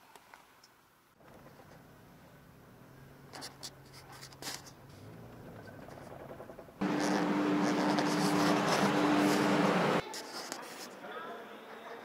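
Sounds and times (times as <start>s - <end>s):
car engine hum: 1.3s - 10.0s
knocks and rattles: 5.4s - 8.0s
loud steady drone: 6.8s - 10.0s.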